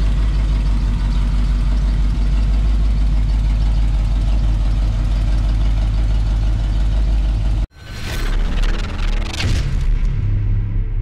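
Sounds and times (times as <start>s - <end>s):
truck engine idling: 0.0s - 7.7s.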